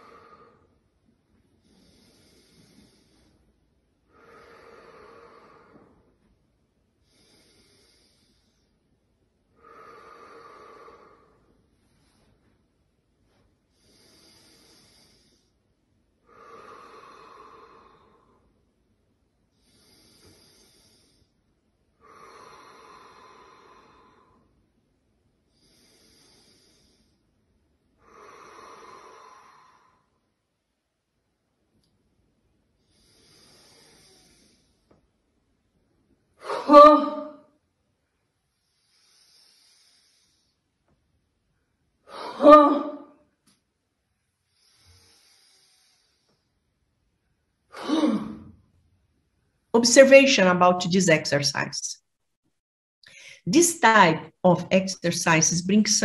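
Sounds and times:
woman breathing in softly: 1.5s - 6.3s, 9.6s - 12.6s, 16.2s - 18.6s, 19.5s - 24.6s, 28.0s - 30.3s, 44.5s - 46.6s
woman exhaling deeply: 4.1s - 6.1s, 9.6s - 11.5s, 16.3s - 18.4s, 22.0s - 24.5s, 28.0s - 30.1s, 47.7s - 48.6s
woman exhaling breathily: 42.1s - 43.1s, 47.7s - 48.6s.

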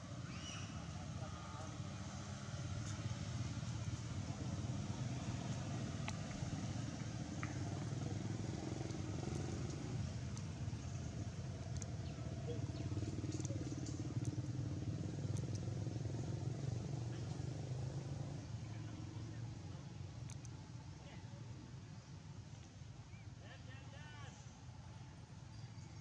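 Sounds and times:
motor vehicle engine drone: 0.0s - 21.0s
faint ticks: 8.4s - 15.8s, 20.2s - 20.7s.

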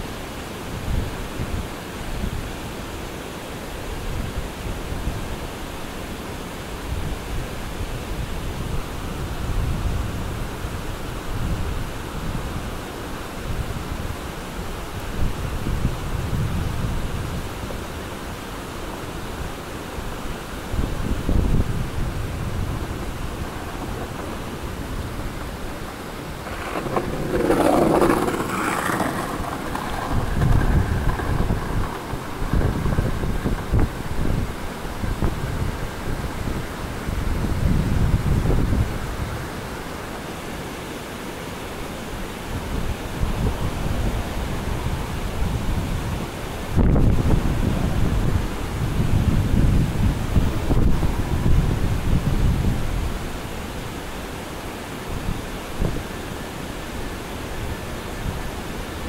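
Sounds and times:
skateboard wheels rolling on concrete: 0.0s - 59.0s
wind buffeting microphone: 19.1s - 39.8s, 42.5s - 54.2s.

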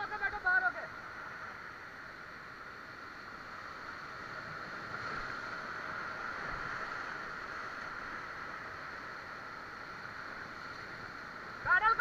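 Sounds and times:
whitewater rushing: 9.4s - 12.0s.

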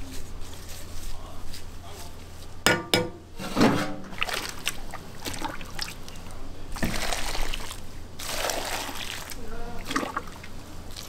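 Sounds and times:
metal ladle clanking on cauldron: 2.7s - 4.1s
broth trickling and splashing: 4.1s - 11.0s.

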